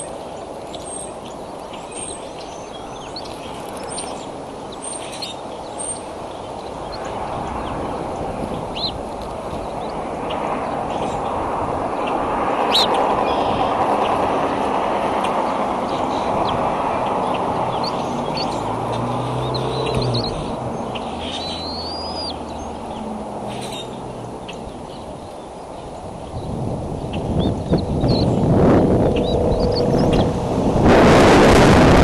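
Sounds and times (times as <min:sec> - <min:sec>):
steady rushing background: 0:06.4 - 0:32.0
high bird chirps: 0:15.8 - 0:25.1, 0:29.0 - 0:30.3
whistled bird call: 0:21.2 - 0:22.4.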